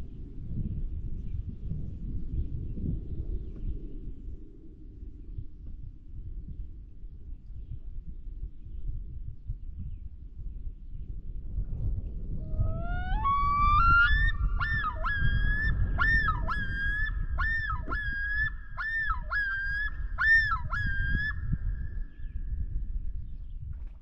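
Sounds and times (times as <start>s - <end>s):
low steady rumble: 0.0s - 18.8s
loon yodel call: 12.5s - 21.4s.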